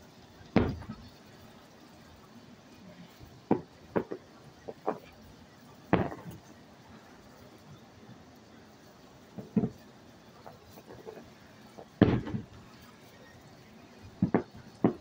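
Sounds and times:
fireworks booming: 0.4s - 1.9s, 3.1s - 6.6s, 9.2s - 15.0s.

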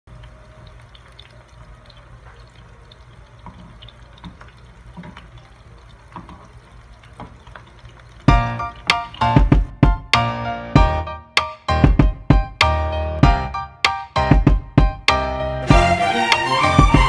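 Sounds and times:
chicken sizzling in hot oil: 0.1s - 8.5s
oil popping and crackling: 0.1s - 10.2s.

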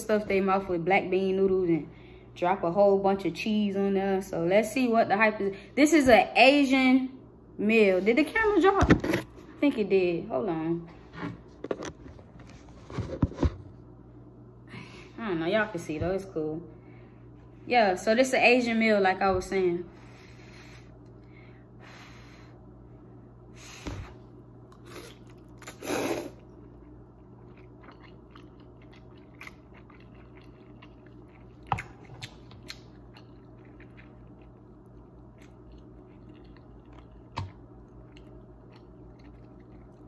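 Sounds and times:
low steady hum: 0.0s - 40.0s
person chewing noodles: 24.7s - 40.0s.

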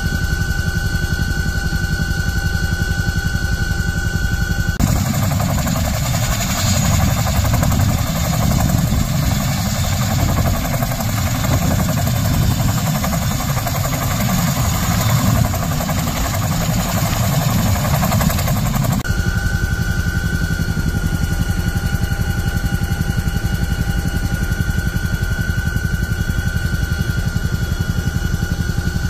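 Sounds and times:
helicopter turbines and rotors: 0.0s - 29.0s
steady high whine: 0.0s - 29.0s
rotors beating rapidly: 4.8s - 19.0s.

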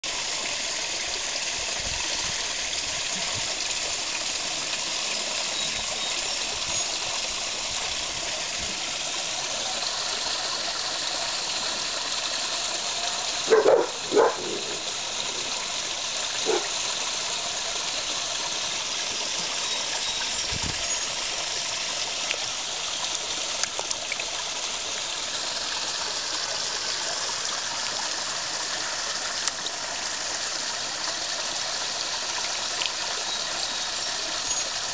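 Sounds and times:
running water: 0.0s - 34.9s
dog barking: 13.5s - 14.8s, 16.4s - 16.7s.

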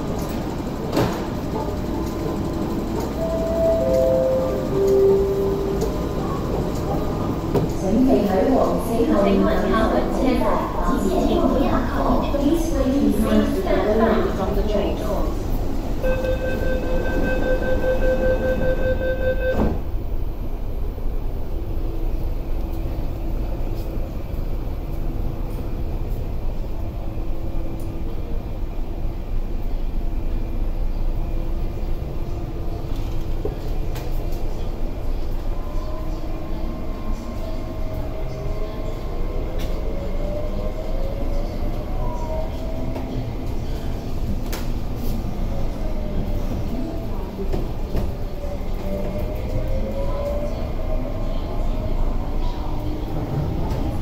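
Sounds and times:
door closing warning tone: 16.0s - 19.8s.

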